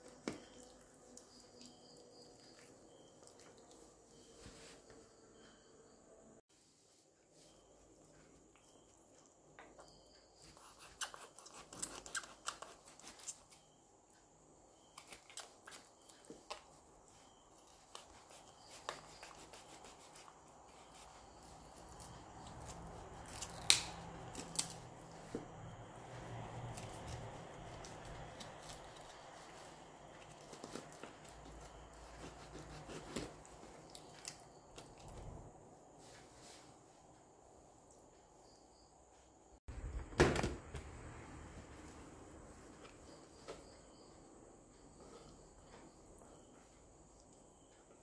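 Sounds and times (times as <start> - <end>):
knife cutting raw chicken: 10.5 - 13.6
sharp crack of joint: 23.3 - 24.9.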